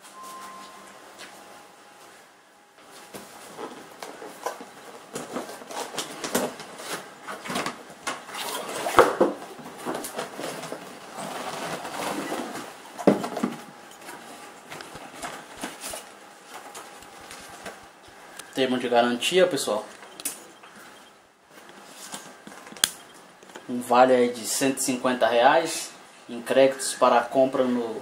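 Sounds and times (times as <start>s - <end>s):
cardboard flaps scraping and rustling: 2.9s - 17.8s
clicks: 19.9s - 20.8s, 22.5s - 23.7s.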